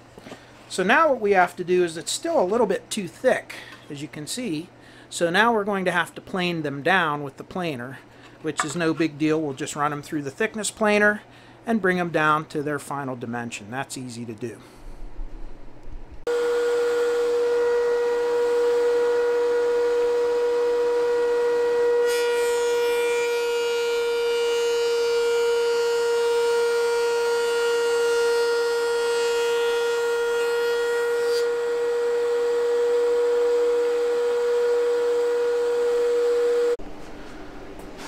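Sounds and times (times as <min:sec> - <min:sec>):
thickness planer whining: 0:16.3 - 0:36.8.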